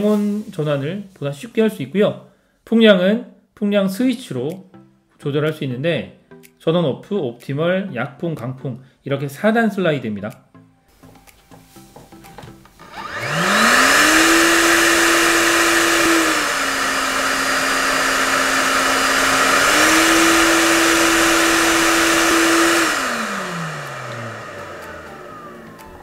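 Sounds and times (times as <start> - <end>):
hair dryer motor whine: 12.8 - 26.0.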